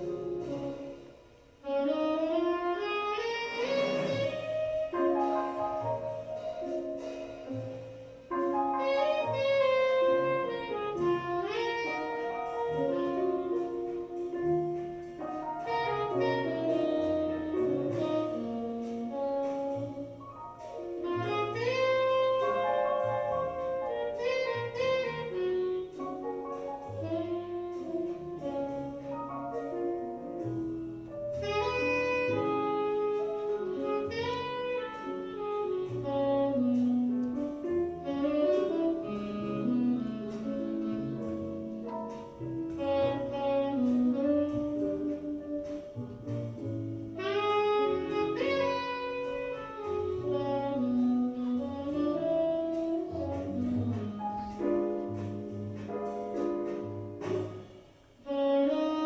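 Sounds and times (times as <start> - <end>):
instrumental music: 0.0 - 59.0.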